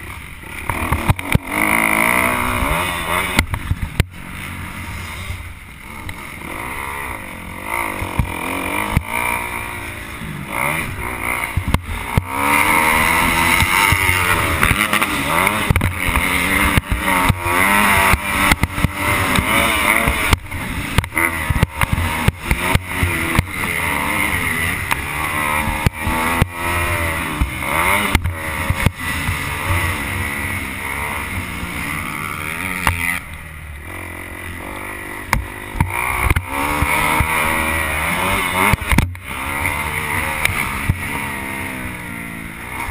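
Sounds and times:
motocross bike engine: 0:00.0 - 0:42.9
sharp knocks and clatter: 0:13.4 - 0:23.7.

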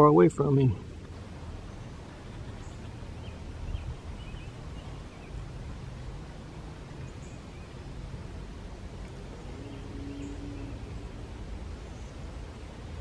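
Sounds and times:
low outdoor rumble: 0:00.0 - 0:13.0
faint bird chirps: 0:09.2 - 0:12.8.

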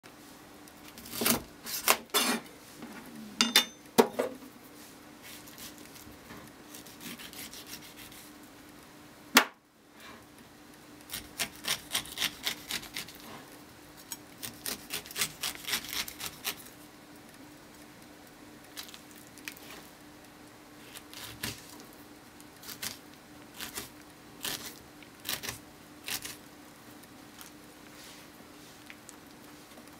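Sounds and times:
knife cutting pineapple on board: 0:06.7 - 0:08.2.

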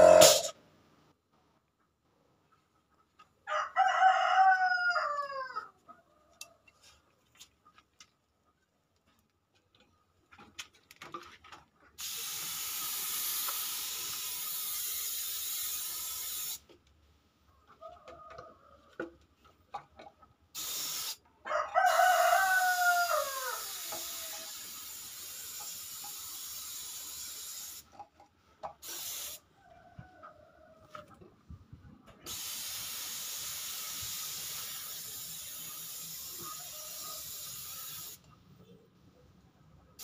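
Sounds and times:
loud falling call: 0:00.0 - 0:00.5
spray gun hissing: 0:00.0 - 0:00.5, 0:12.0 - 0:16.6, 0:20.6 - 0:21.2, 0:23.1 - 0:27.8, 0:28.8 - 0:29.4, 0:32.3 - 0:38.2.

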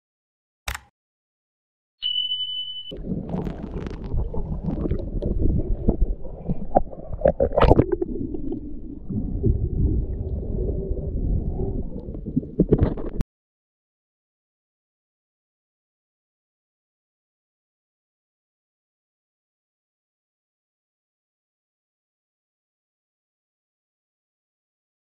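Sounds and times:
short high beep: 0:02.0 - 0:02.9
sea water sloshing and gurgling: 0:02.9 - 0:13.2.

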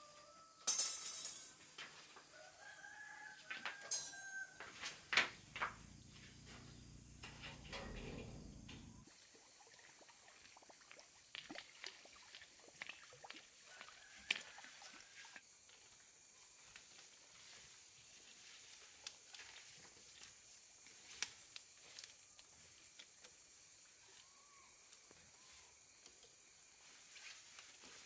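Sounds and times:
rooster crowing: 0:00.0 - 0:00.7, 0:02.0 - 0:05.0, 0:13.7 - 0:15.4.

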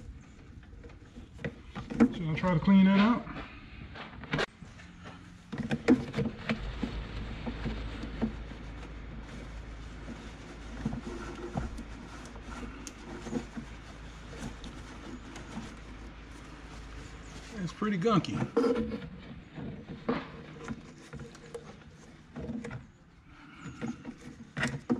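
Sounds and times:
knocks and scrapes on rubber duct: 0:04.4 - 0:24.9
paper towel rustling: 0:05.8 - 0:18.7.

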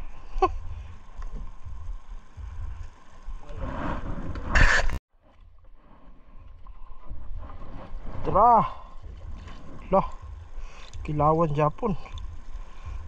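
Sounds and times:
wet net rustling and dragging: 0:05.5 - 0:10.6.

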